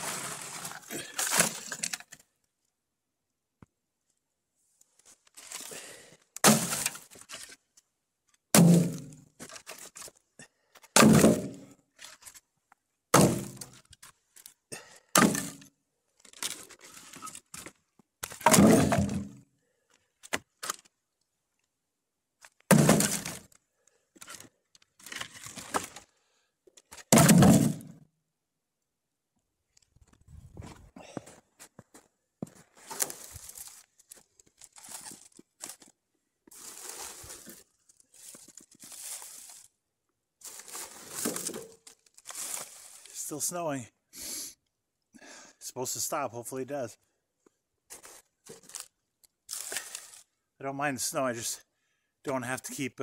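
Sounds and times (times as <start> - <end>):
wooden knocks and cracks: 22.4 - 23.6.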